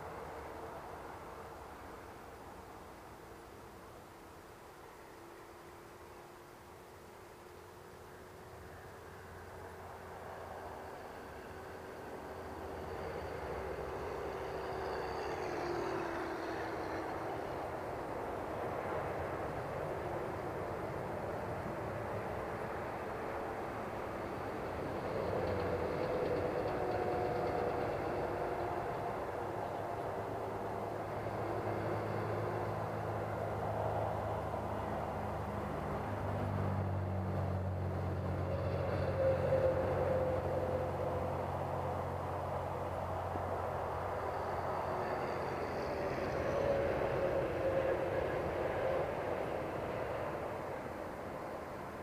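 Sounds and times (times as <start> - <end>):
radial engine rumble: 8.1 - 52.0.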